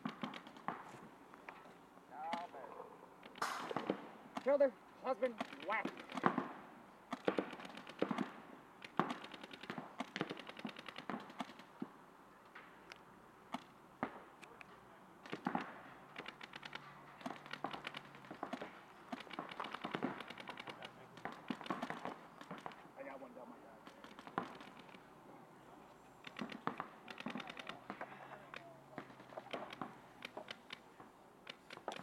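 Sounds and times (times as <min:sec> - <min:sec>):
paintball markers firing rapidly: 0:00.0 - 0:00.8, 0:03.2 - 0:04.6, 0:05.2 - 0:11.8, 0:15.2 - 0:22.8, 0:23.8 - 0:25.0, 0:26.3 - 0:32.0.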